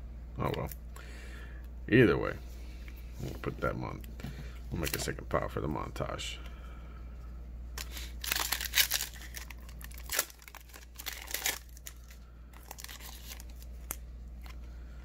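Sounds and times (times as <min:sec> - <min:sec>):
foil wrapper crinkling: 0:07.8 - 0:14.6.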